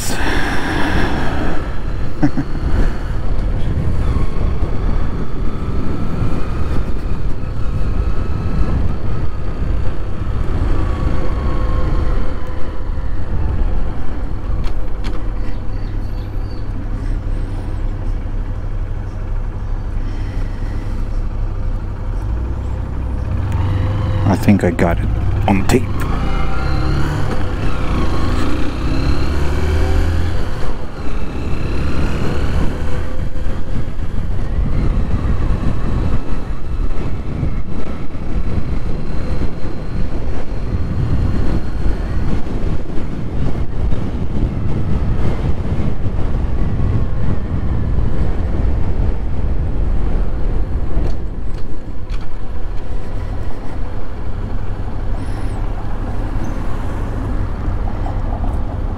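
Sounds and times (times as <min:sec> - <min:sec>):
wind rumbling on microphone: 0:00.0 - 0:58.9
motorcycle engine accelerating: 0:20.6 - 0:37.5.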